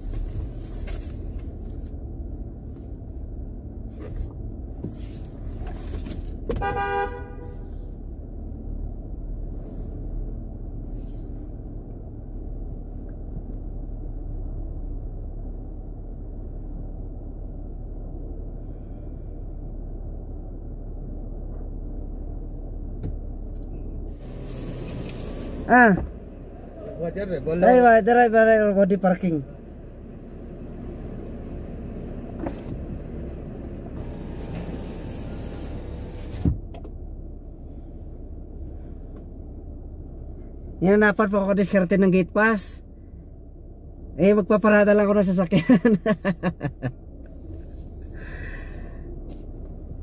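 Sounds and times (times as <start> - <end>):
car engine running: 0.0 - 50.0
car horn: 6.5 - 7.8.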